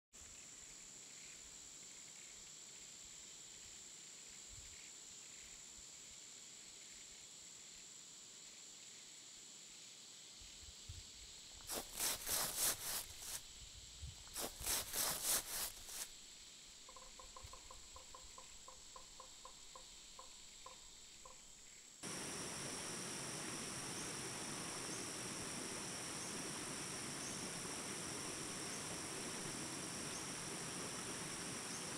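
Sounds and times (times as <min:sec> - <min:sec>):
soft insect chirps: 0:10.2 - 0:31.9
raspy insect pulses: 0:11.3 - 0:31.9
high-pitched insect drone: 0:22.0 - 0:31.9.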